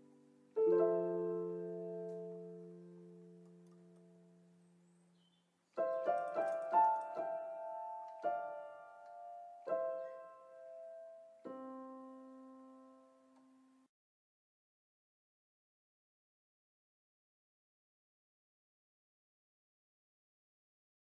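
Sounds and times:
solo piano music: 0.0 - 13.9.

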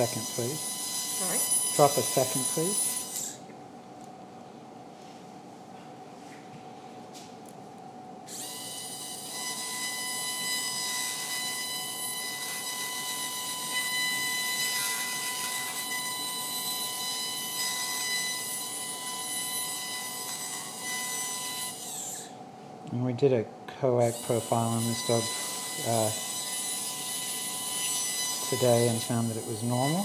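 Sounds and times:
surgical drill whining: 0.0 - 3.6, 8.2 - 22.4, 24.0 - 30.0.

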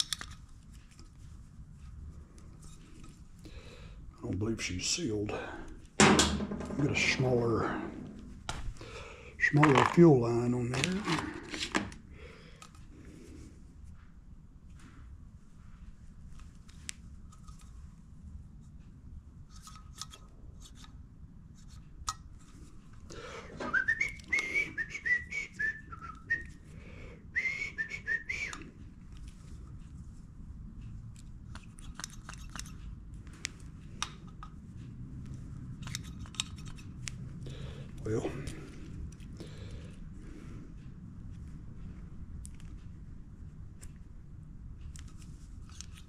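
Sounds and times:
small metal parts clicking: 0.0 - 0.5, 31.5 - 32.9, 35.8 - 37.1
man whistling a tune: 23.6 - 26.6, 27.3 - 28.6.

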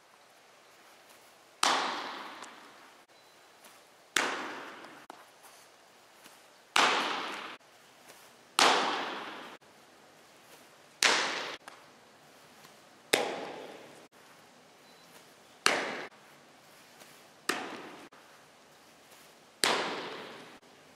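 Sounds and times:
balls smacking catcher's gear: 1.1 - 3.0, 3.6 - 5.2, 6.2 - 9.6, 10.5 - 11.9, 12.5 - 14.1, 15.1 - 18.2, 19.1 - 20.6.

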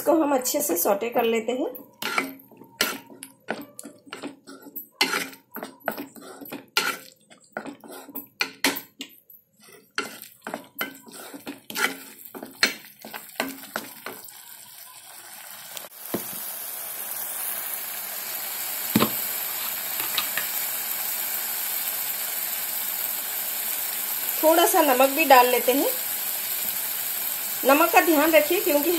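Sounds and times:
masala sizzling in oil: 2.0 - 8.6, 9.6 - 28.9
wooden spoon scraping a pan: 2.0 - 8.7, 9.6 - 14.2, 19.0 - 20.5
knock: 19.0 - 19.2.

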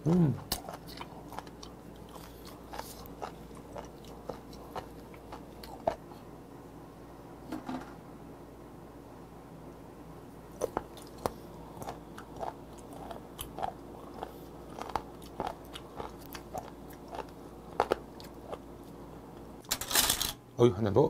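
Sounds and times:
wet crunchy chewing: 0.4 - 6.2, 10.6 - 18.7.

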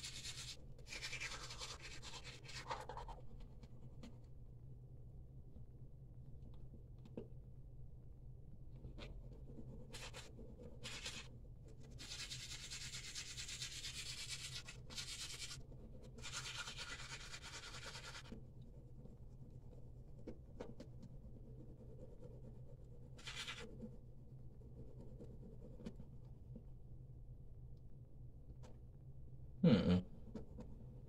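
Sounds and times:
toothbrush scrubbing teeth: 0.0 - 3.2, 11.9 - 15.6, 16.2 - 18.4
low steady hum: 0.0 - 31.0.

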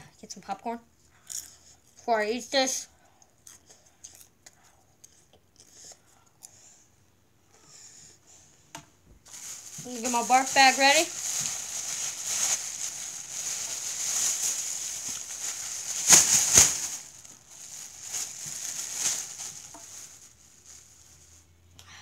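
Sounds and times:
sharp plastic crackles: 9.3 - 21.3
plastic bag rustling: 9.3 - 21.5.

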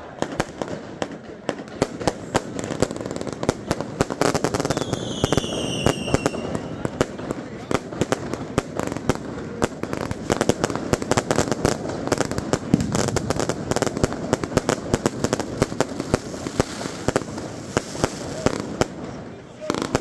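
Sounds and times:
fireworks and firecrackers banging: 0.0 - 20.0.

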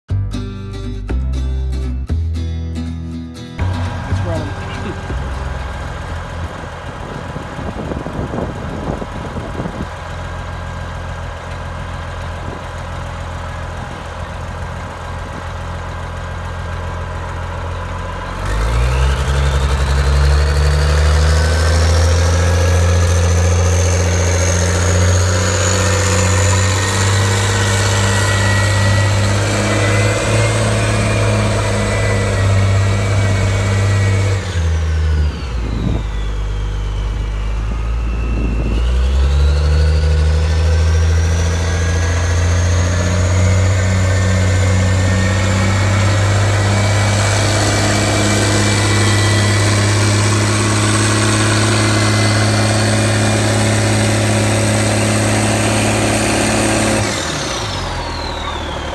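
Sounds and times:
diesel truck engine running: 0.1 - 58.9
high whine: 1.7 - 9.9, 19.4 - 55.0.

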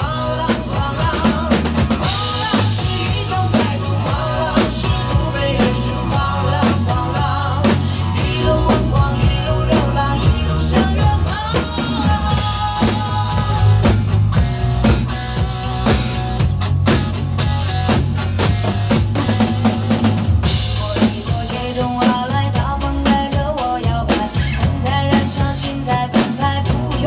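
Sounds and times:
person singing: 0.0 - 14.2, 20.6 - 27.0
drum kits playing rock beat: 0.0 - 27.0
pop song backing track: 0.0 - 27.0.

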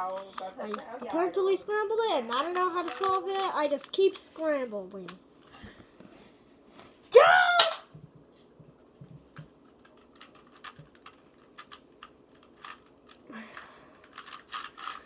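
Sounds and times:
plastic puzzle cube clicking: 14.1 - 15.0.

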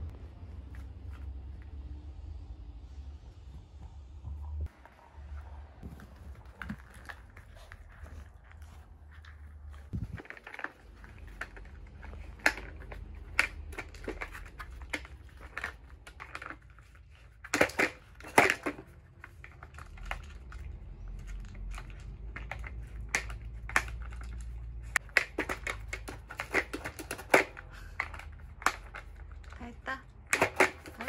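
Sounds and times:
plastic toy clicks and rattles: 9.9 - 31.0.

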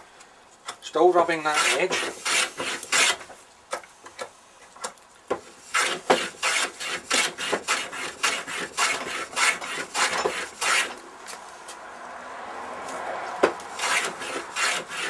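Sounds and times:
hand plane strokes on wood: 1.4 - 3.4, 5.6 - 11.0, 13.3 - 15.0.

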